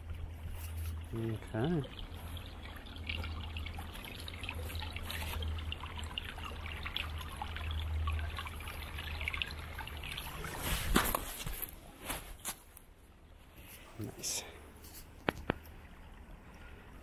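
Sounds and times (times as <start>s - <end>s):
creek water babbling over stones: 0.0s - 11.9s.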